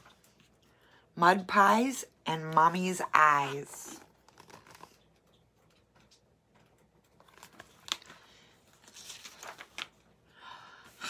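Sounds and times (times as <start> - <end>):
book pages rustling: 3.4 - 10.2.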